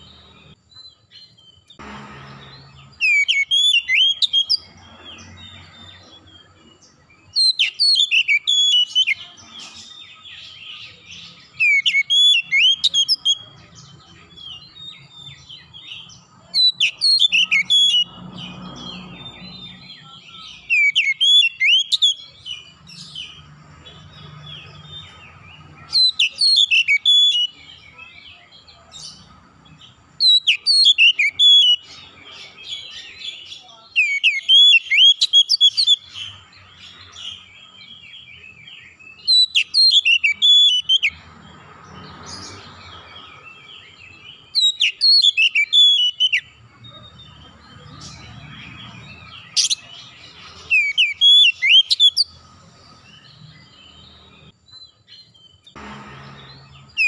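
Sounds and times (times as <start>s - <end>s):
soft bird chirping: 0.0s - 57.0s
bird singing whistled phrases: 3.0s - 4.6s, 7.3s - 9.3s, 10.9s - 13.5s, 16.5s - 18.1s, 19.3s - 22.4s, 25.9s - 28.4s, 30.2s - 32.0s, 33.6s - 36.2s, 39.1s - 41.2s, 44.5s - 46.5s, 50.6s - 52.3s.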